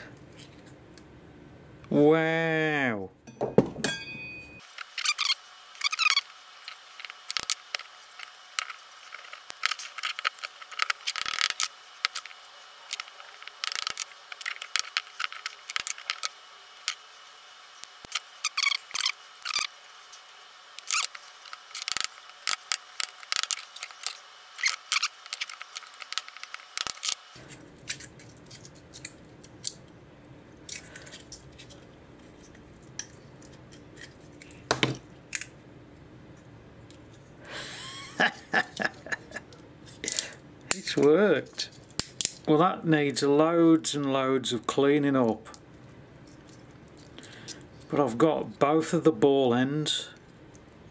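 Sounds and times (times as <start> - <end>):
low hum: 3.0 - 5.3
handling knocks: 3.3 - 4.5.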